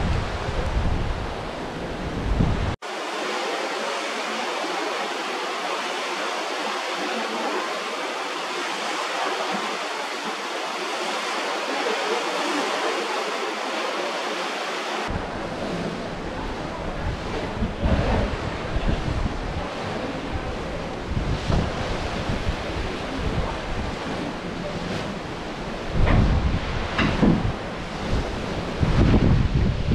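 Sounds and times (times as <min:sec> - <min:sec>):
wind buffeting microphone: 0:00.0 - 0:02.8, 0:15.0 - 0:29.9
heavy rain hissing: 0:00.0 - 0:29.9.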